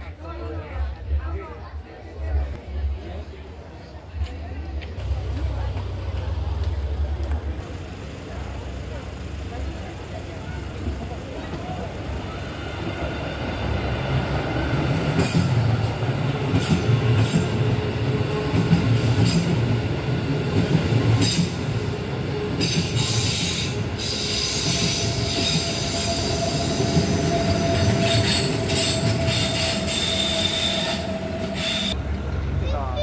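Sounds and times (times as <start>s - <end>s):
train wheels rumbling on rails: 2.3s - 33.0s
wheels hissing and squealing: 22.6s - 32.0s.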